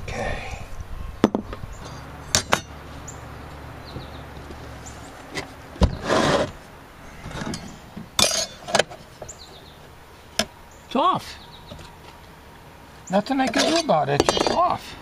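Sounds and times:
saw scraping on bench: 5.9s - 6.6s.

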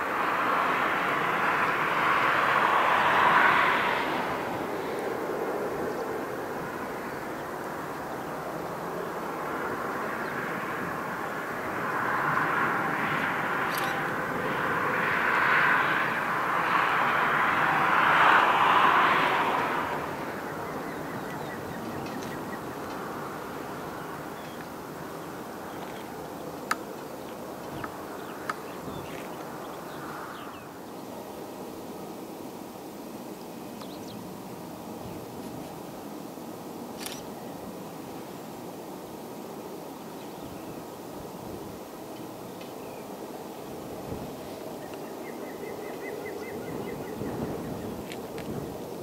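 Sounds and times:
jet engines rushing: 0.0s - 49.0s
outdoor background noise: 0.0s - 49.0s
sharp clicks: 37.0s - 37.3s.

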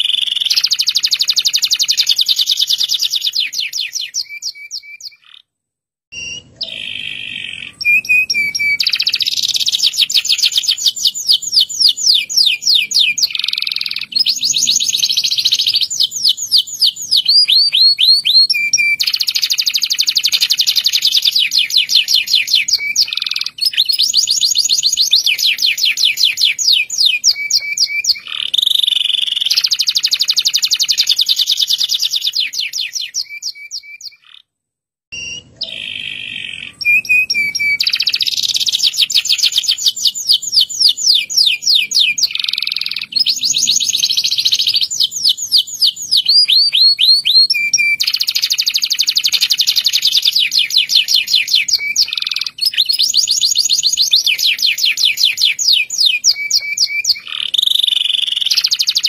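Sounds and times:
canary singing trills: 0.0s - 5.5s, 6.1s - 34.5s, 35.1s - 59.0s.

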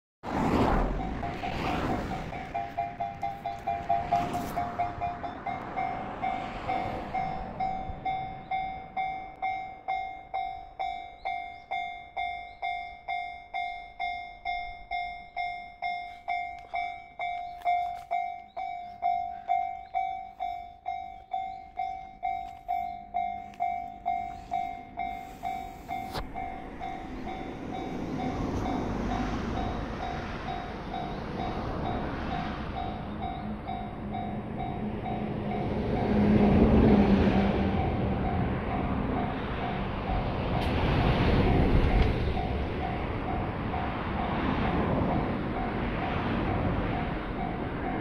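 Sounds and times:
low train rumble: 0.2s - 48.0s
level crossing bell ringing: 2.2s - 35.7s.

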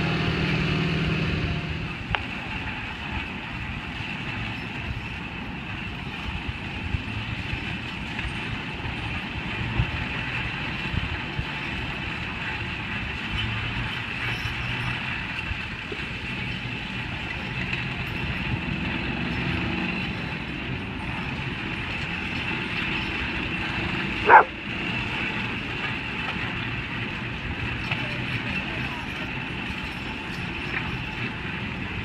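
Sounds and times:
outdoor noise: 0.0s - 32.0s
dog bark: 24.2s - 24.6s.

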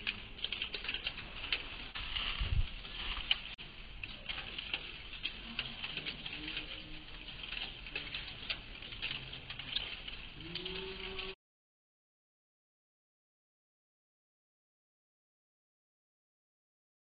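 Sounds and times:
pattering and clicking: 0.0s - 11.4s.

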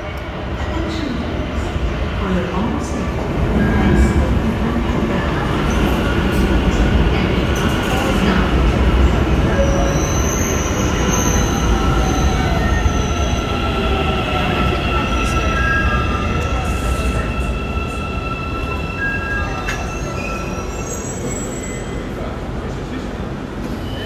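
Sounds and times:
high squealing brakes: 9.5s - 13.9s, 15.2s - 22.2s.

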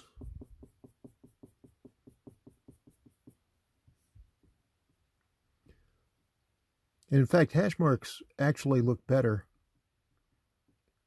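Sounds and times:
marker strokes on paper: 0.0s - 5.0s.

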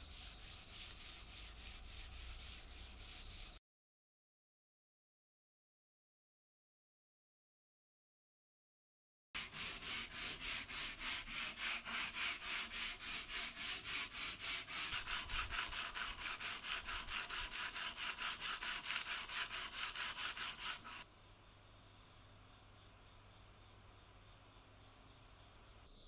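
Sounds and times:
sandpaper scratching on wood: 0.0s - 3.6s, 9.4s - 21.0s.

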